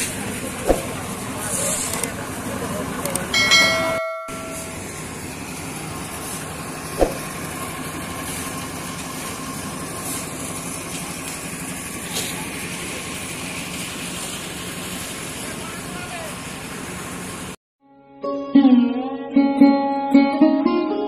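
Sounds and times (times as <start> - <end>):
concrete mixer droning: 0.0 - 17.6
short ringing chime: 3.4 - 4.8.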